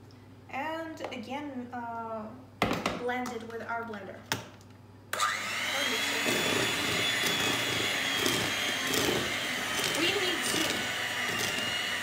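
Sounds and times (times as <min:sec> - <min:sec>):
electric hand mixer whine: 0:05.2 - 0:12.0.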